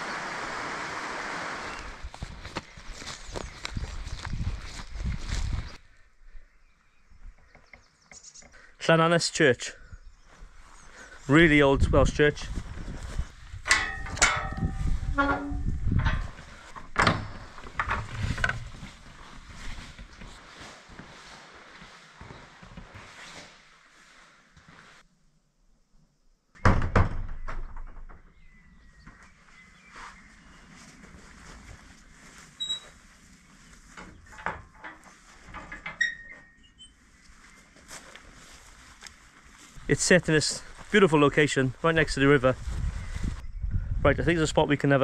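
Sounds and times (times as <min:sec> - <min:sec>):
gate hinge squealing: 0:13.7 - 0:16.2, 0:32.6 - 0:32.9, 0:35.7 - 0:37.0
metal gate clank: 0:13.7 - 0:16.4
wooden door creaking: 0:15.0 - 0:18.7, 0:26.6 - 0:28.4.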